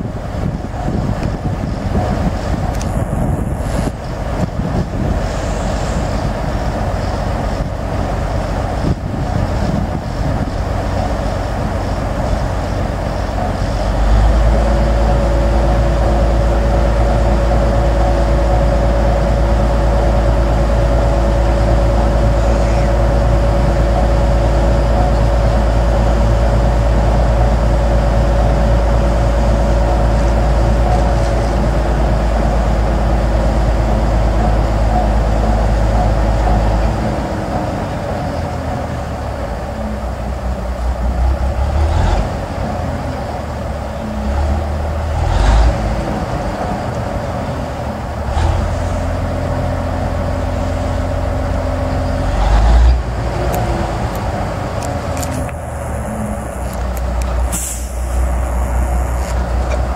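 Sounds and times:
wind buffeting microphone: 0.0 - 39.6
held droning tone: 0.0 - 41.6, 45.9 - 59.9
crane engine running: 0.0 - 59.9.

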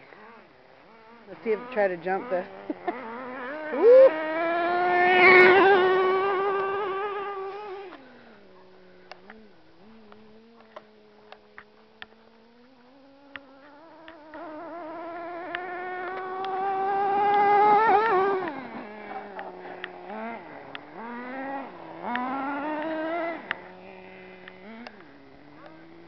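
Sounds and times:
small nitro engine revving: 0.0 - 26.0
sharp clicks: 22.0 - 23.7.

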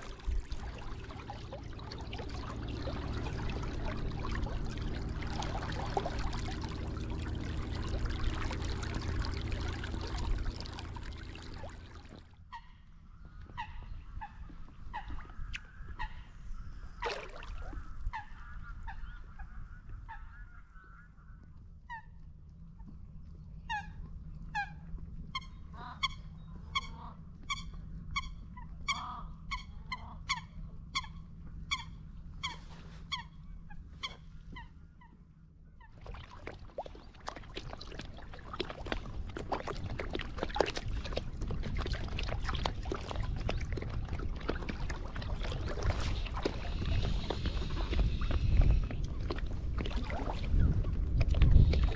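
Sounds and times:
water splashing: 0.0 - 12.3, 17.0 - 17.8, 35.9 - 51.9.

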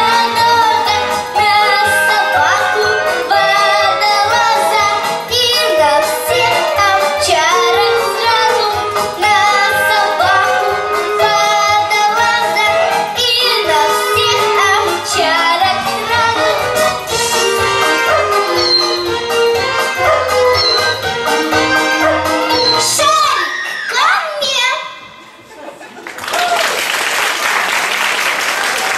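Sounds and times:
girl singing into microphone: 0.0 - 19.2, 20.5 - 25.0
instrumental music with bass beat: 13.7 - 23.0.

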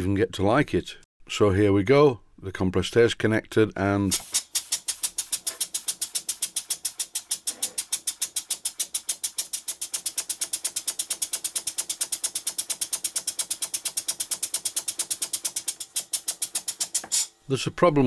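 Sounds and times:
model steam engine exhaust puffs: 4.1 - 17.3.

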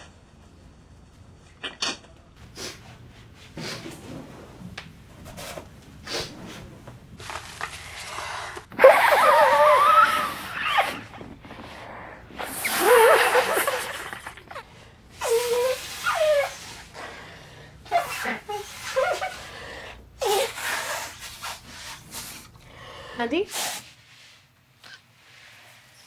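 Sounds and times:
man blowing his nose: 11.9 - 17.1, 20.2 - 22.5.

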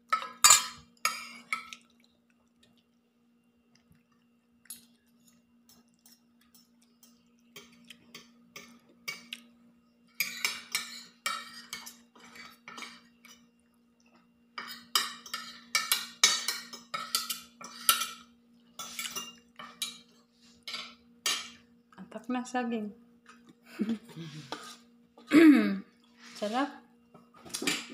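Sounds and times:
faint steady hum: 0.0 - 27.9
cutlery clinking on plates: 0.1 - 1.7, 10.2 - 13.5, 14.6 - 21.6.

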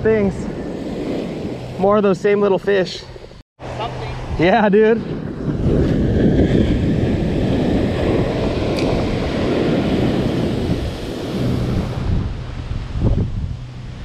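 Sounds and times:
ocean surf breaking: 0.0 - 13.2
wind buffeting microphone: 0.0 - 14.0.

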